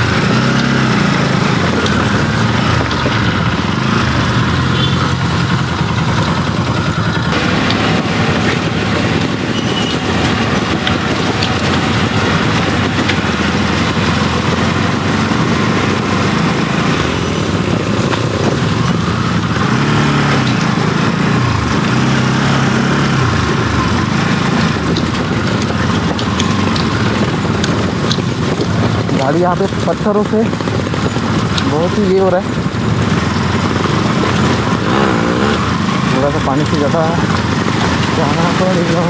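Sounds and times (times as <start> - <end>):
motorcycle engine running: 0.0 - 39.0.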